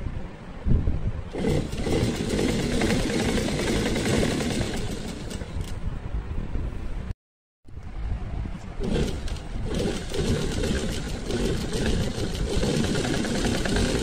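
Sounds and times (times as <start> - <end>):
sewing machine stitching: 1.3 - 5.8, 8.8 - 14.0.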